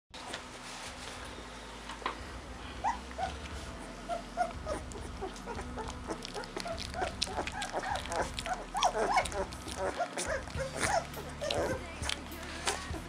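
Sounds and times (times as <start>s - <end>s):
puppy whimpering: 2.8s - 13.0s.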